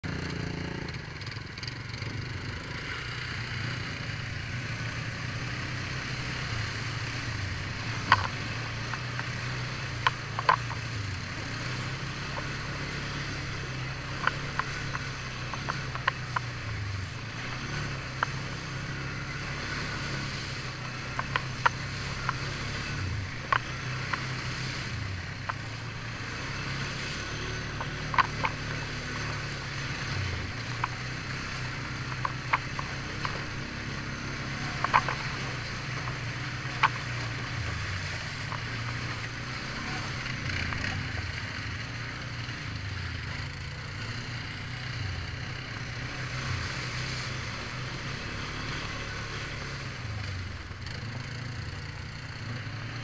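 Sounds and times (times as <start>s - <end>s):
quad engine running: 0.0s - 53.0s
clicks and knocks on rutted trail: 5.6s - 42.5s.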